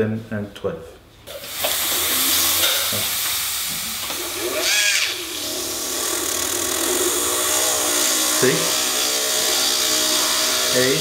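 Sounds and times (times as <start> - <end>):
dental drill hissing: 1.3 - 11.0
drill whine: 1.9 - 3.0, 4.1 - 11.0.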